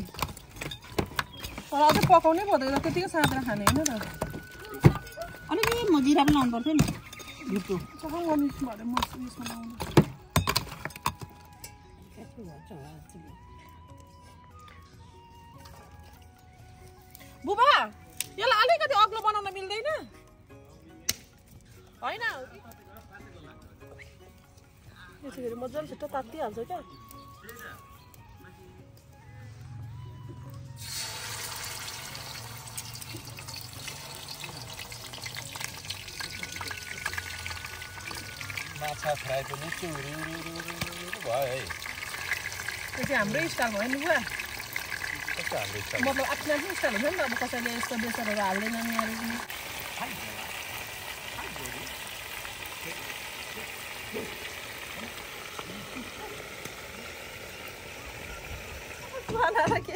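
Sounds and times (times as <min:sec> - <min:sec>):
fish sizzling in hot oil: 0:00.0 - 0:10.7, 0:30.8 - 0:59.9
oil spattering crackles: 0:30.8 - 0:58.0.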